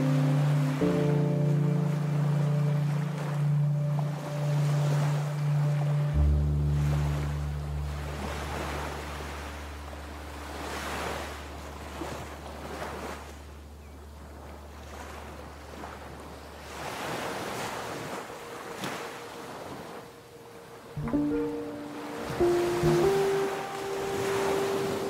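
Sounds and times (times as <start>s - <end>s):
music notes: 0.0s - 8.8s, 21.0s - 25.0s
ocean waves breaking: 0.0s - 25.0s.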